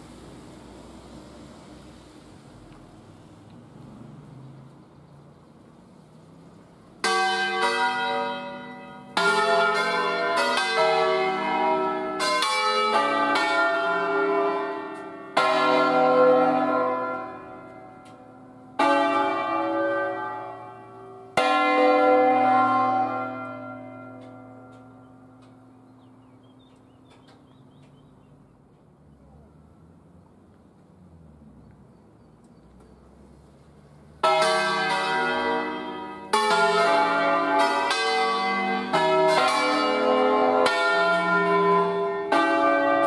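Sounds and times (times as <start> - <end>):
church bells ringing: 6.9 - 27.1, 34.2 - 43.0.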